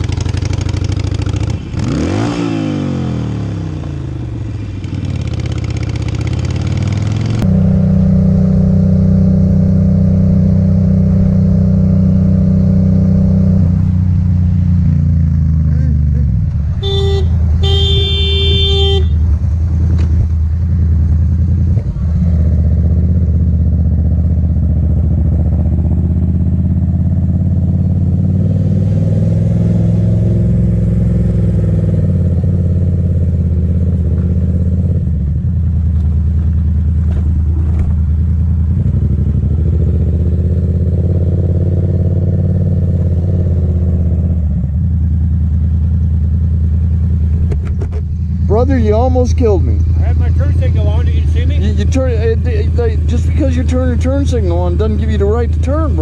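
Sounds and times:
motorcycle engine running: 0.0 - 56.0
horn beeping: 16.8 - 19.4.

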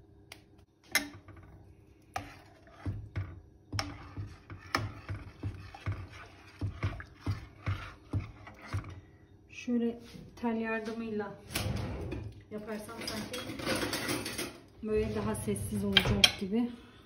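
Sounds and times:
spoon stirring in metal pot: 0.8 - 9.2.

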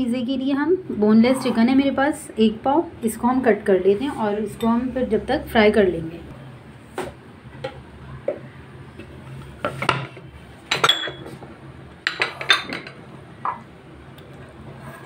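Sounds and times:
glass bowls and utensils clinking: 10.7 - 11.4, 12.1 - 13.6.

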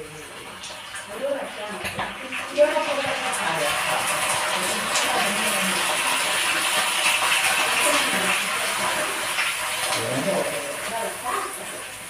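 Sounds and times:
meatballs sizzling in oil: 0.0 - 12.0
sauce pouring into pan: 0.0 - 12.0.

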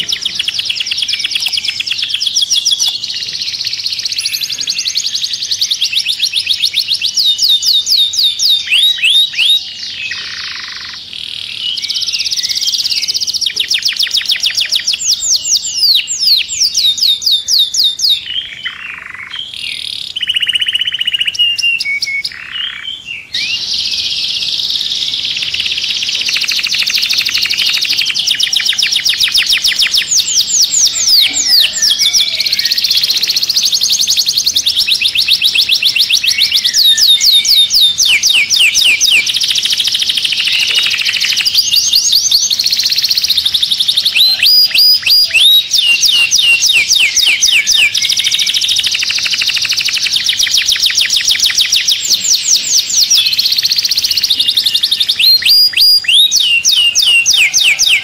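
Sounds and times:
canary singing trills: 0.0 - 58.0.

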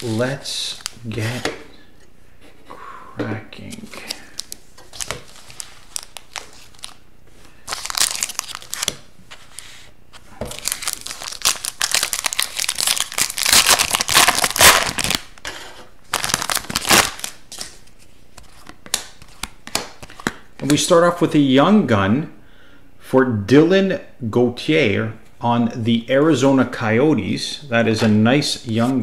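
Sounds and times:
foil wrapper crinkling and tearing: 4.4 - 7.0, 7.7 - 9.0, 10.6 - 15.3, 16.1 - 17.7.

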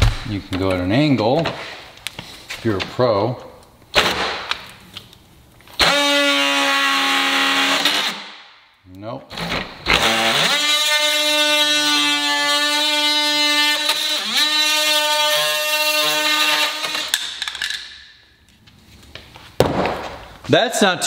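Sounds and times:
oscillating multi-tool buzzing: 9.9 - 17.2.

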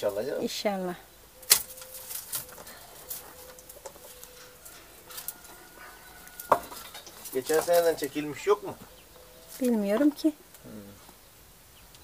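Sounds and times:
pruning shears snipping: 1.4 - 5.6
rustling of cut canes: 1.4 - 11.2.

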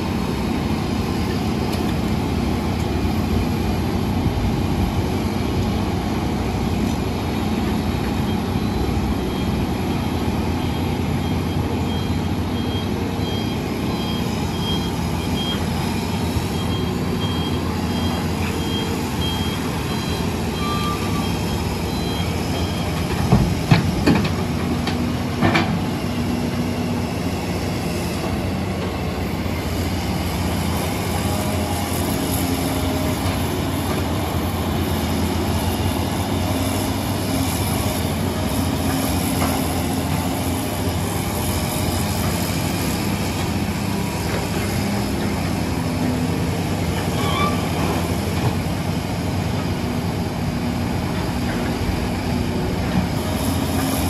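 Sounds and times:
diesel engines running: 0.0 - 54.0.

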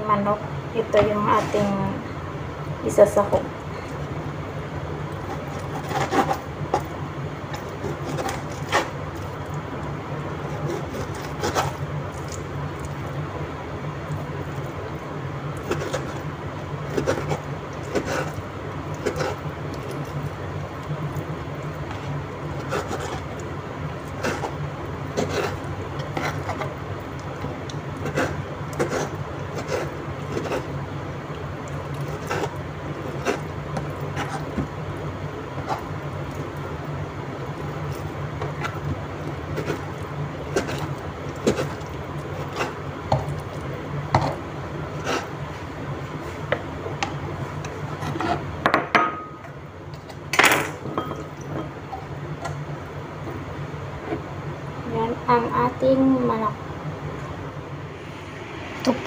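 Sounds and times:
steady low hum: 0.0 - 59.0
knife sawing and scraping: 5.4 - 6.4, 7.8 - 9.0, 22.6 - 23.2, 45.0 - 45.3, 48.0 - 48.5.

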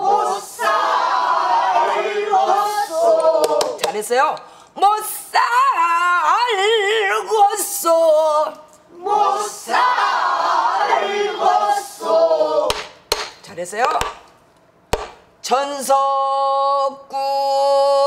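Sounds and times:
group of voices singing: 0.0 - 4.0, 8.9 - 13.0.

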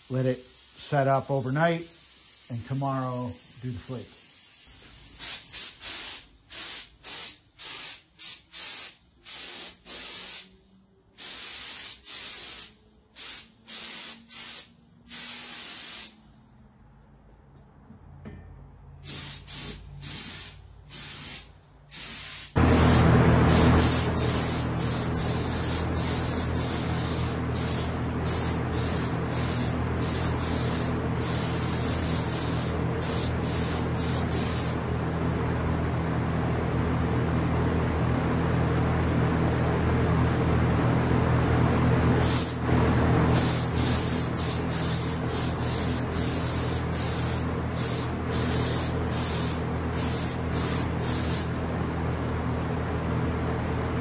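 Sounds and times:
paint spray gun hissing: 0.0 - 10.5, 11.2 - 16.2, 19.0 - 34.8, 42.2 - 42.6, 43.4 - 51.5
low machine hum: 22.6 - 54.0.

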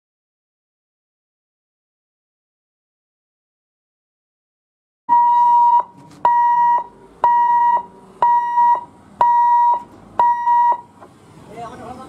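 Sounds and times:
level crossing electronic beeps: 5.1 - 10.9.

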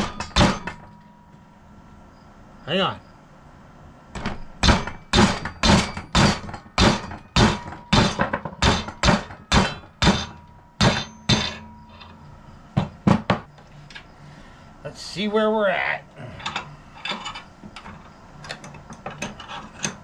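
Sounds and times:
mallet hammering steel: 0.0 - 1.4, 4.2 - 13.5
faint metallic ring: 0.1 - 3.2, 7.0 - 14.6, 16.3 - 20.0.

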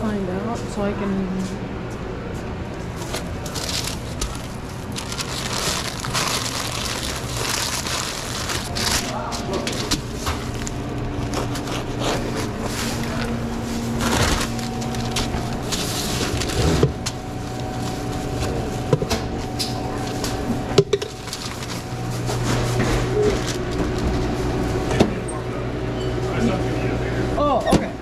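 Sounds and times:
machine hum: 0.0 - 28.0
paper rustling: 3.0 - 18.6, 21.1 - 24.5.

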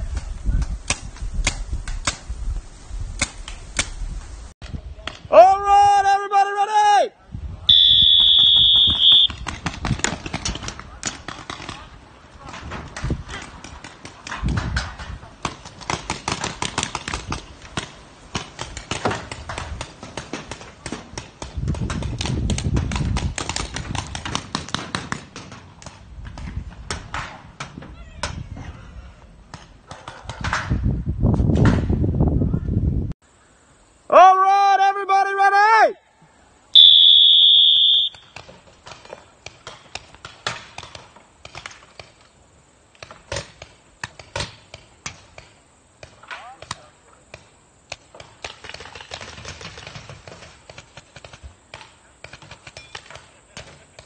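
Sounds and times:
paintball markers firing: 15.4 - 27.8.

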